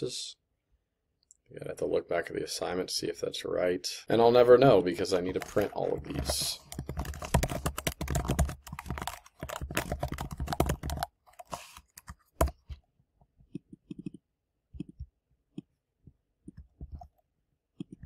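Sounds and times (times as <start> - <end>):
typing on computer keyboard: 5.3 - 12.7.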